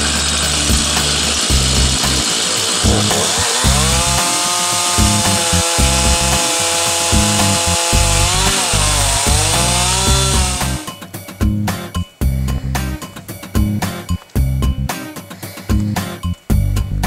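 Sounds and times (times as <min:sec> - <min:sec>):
chainsaw cutting through log: 0:00.0 - 0:10.9.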